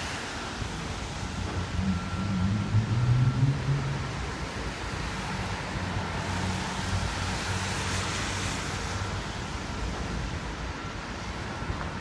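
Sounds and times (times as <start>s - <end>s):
street traffic noise: 0.0s - 12.0s
low engine hum: 0.6s - 7.5s.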